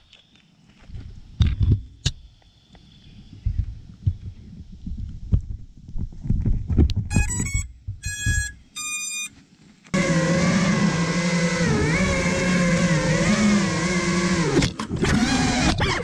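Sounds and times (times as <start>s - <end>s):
electronic beeps: 7.2s - 9.3s
drone motors whining: 9.9s - 16.0s.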